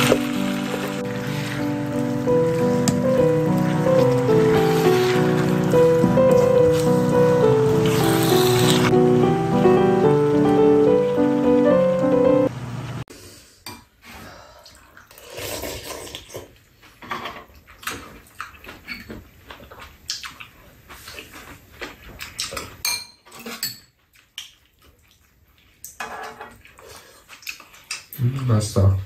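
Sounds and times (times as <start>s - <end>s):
wet chewing: 15.0s - 22.8s, 24.0s - 28.5s
spoons clinking on bowls: 22.8s - 23.9s.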